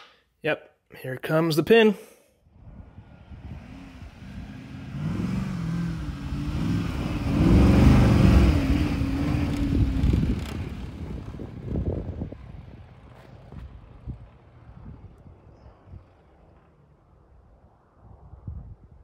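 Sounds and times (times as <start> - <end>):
engine revving: 2.8 - 14.2.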